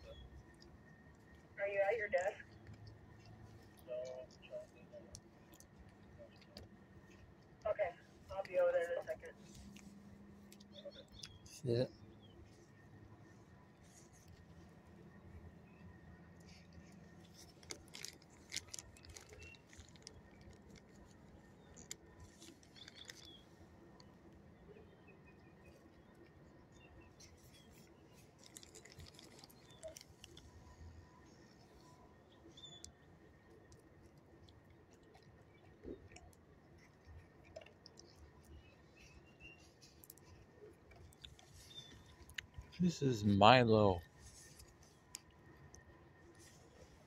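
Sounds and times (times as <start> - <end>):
plastic bag crinkling: 16.5 - 23.4, 27.4 - 30.7.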